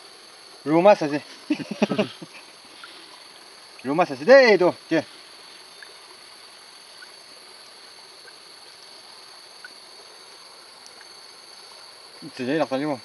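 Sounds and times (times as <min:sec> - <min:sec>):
high-pitched insect drone: 0:00.0 - 0:13.0
steady hiss: 0:00.0 - 0:13.0
faint ticks: 0:05.7 - 0:06.1, 0:10.8 - 0:11.2.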